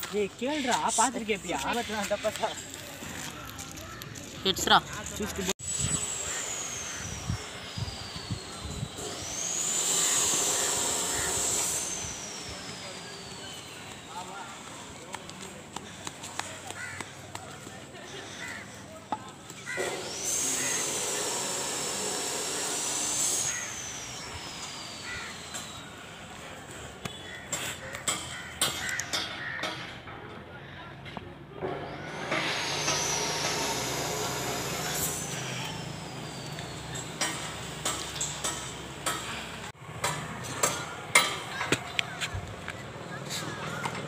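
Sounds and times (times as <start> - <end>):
loud hiss: 4.6 - 15.0, 19.7 - 27.9, 31.9 - 39.8
thin high whistle-like tone: 11.8 - 14.8.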